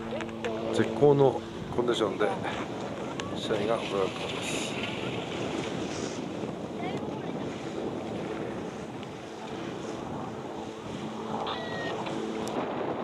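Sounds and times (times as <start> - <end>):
wind on microphone: 0.0 - 13.0
distant voices calling: 11.4 - 12.4.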